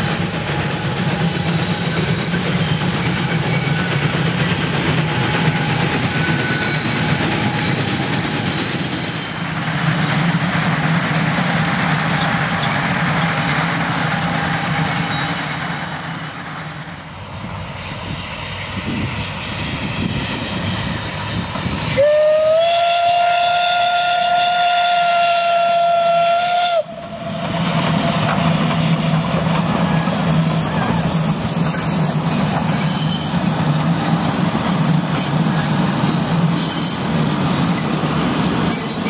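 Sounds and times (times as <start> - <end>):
steam train running past: 0.0 - 39.0
steam whistle blast: 21.3 - 27.2.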